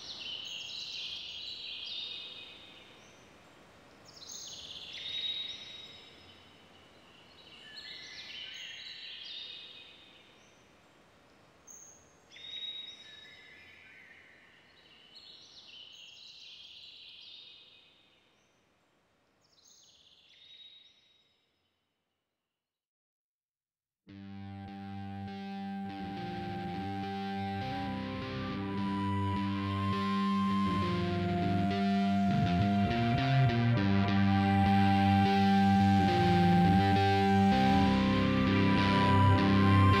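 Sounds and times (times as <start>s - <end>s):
faint hiss: 0.0s - 16.6s.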